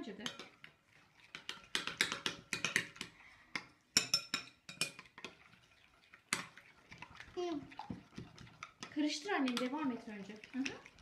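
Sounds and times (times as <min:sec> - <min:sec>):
spoons clinking against glass bowls: 0:03.9 - 0:05.3.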